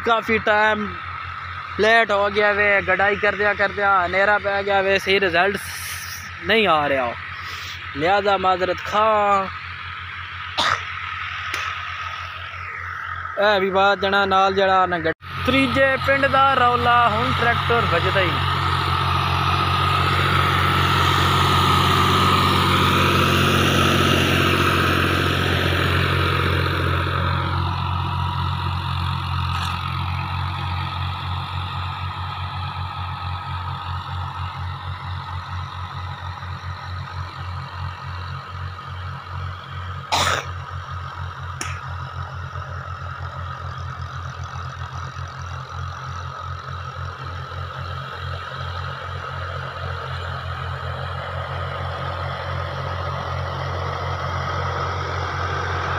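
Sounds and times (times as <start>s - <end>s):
tractor diesel engine running: 0.0s - 55.9s
sharp click: 11.5s - 11.8s, 41.6s - 41.9s.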